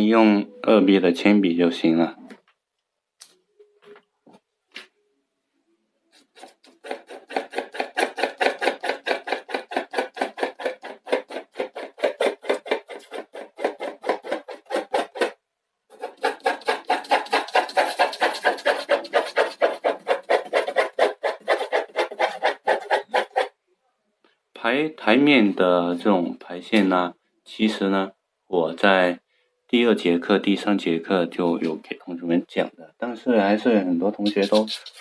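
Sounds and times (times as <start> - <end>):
pencil hatching on paper: 6.1 - 23.5, 34.2 - 35.0.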